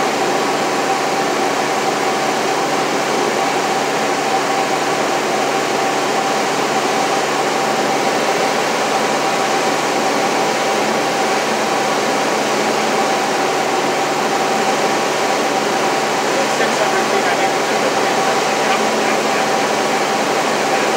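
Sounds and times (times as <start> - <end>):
light aircraft engine and propeller: 0.0 - 20.9
steady high hum: 0.0 - 20.9.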